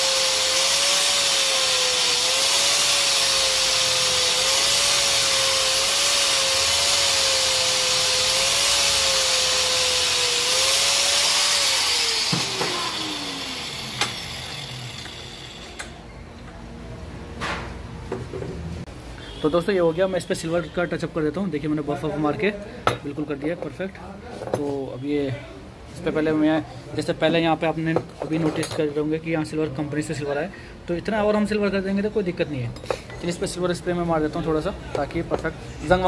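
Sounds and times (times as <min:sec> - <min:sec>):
electric grinder grinding metal: 0:00.0 - 0:15.9
grinder winding down whine: 0:00.0 - 0:16.0.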